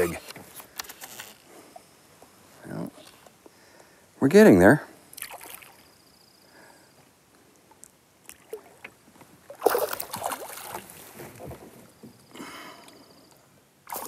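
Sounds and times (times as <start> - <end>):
fish splashing in water: 5.2 - 5.8, 9.5 - 11.1.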